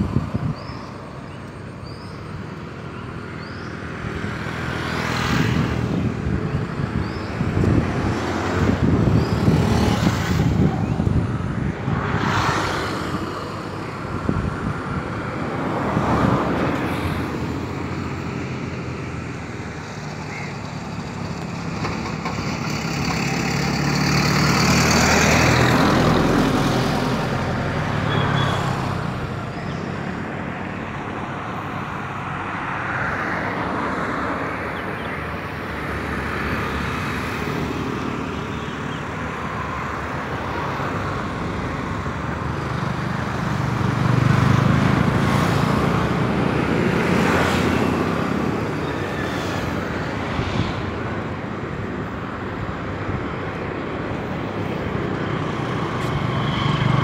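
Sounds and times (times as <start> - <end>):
road traffic rumble: 0.0 - 57.0.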